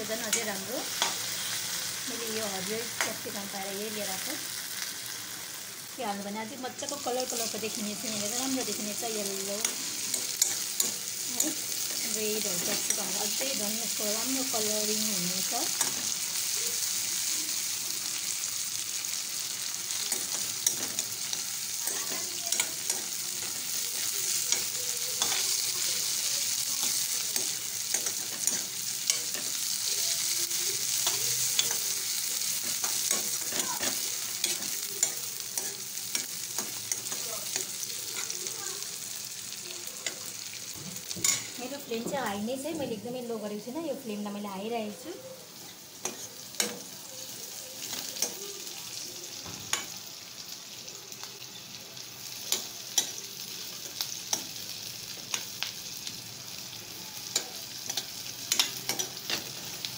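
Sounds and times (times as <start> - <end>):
noodles sizzling in oil: 0.0 - 59.9
metal spoon clinking on pan: 9.6 - 13.2, 20.0 - 25.6, 26.8 - 29.6, 31.0 - 32.0, 32.6 - 38.3, 41.2 - 41.6, 46.0 - 46.9, 52.5 - 53.3, 57.2 - 59.7.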